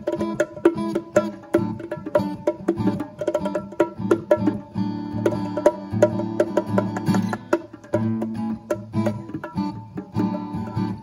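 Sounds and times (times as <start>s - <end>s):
guitar plucking: 0.0s - 11.0s.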